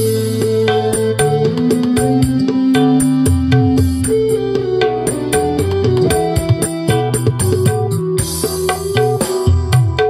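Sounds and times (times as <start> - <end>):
keyboard-led music with bass line: 0.0 - 10.0.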